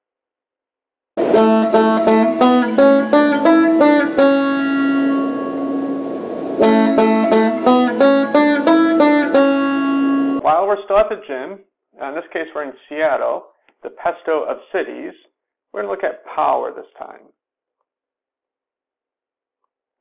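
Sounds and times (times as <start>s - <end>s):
banjo picking: 1.2s - 10.4s.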